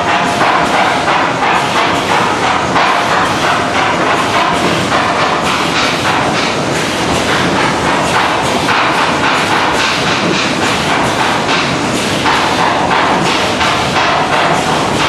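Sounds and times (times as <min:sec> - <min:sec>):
machine clacks and knocks: 0:00.0 - 0:15.0
machinery din: 0:00.0 - 0:15.0.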